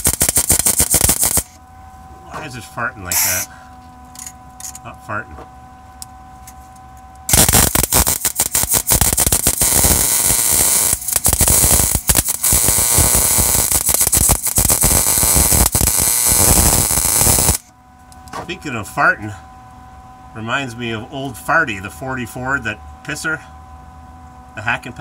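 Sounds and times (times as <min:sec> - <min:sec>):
welding arc crackling: 0:00.0 - 0:01.6, 0:03.1 - 0:03.5, 0:07.3 - 0:17.7.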